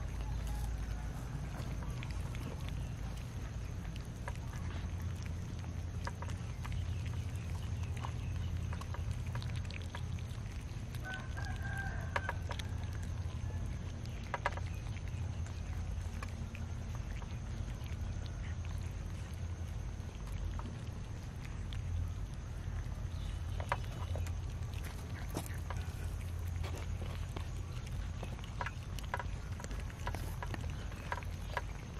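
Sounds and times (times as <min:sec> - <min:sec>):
low rumble: 0:00.0 - 0:11.5
teeth and rice clicking on tray: 0:00.0 - 0:18.6, 0:21.8 - 0:31.9
cats chewing: 0:00.0 - 0:31.9.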